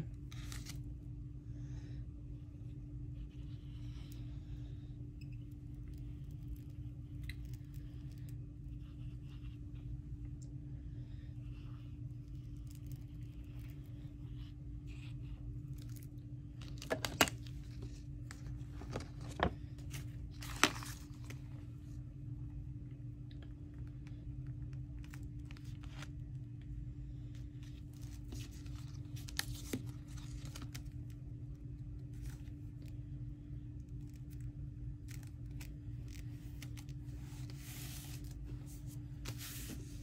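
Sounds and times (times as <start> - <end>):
steady low hum: 0.0 - 40.0
paper crinkling: 0.3 - 0.8, 12.3 - 21.4, 27.6 - 31.2, 33.9 - 40.0.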